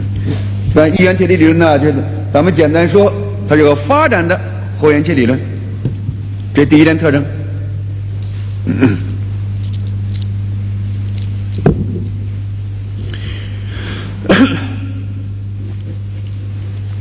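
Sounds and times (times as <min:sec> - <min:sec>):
low electrical hum: 0:00.0 - 0:17.0
knock on microphone: 0:05.8 - 0:06.2.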